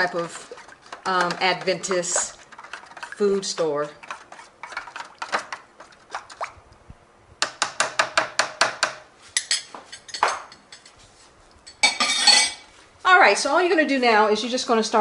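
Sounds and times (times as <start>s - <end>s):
spoon stirring in foil pan: 0.0s - 6.5s.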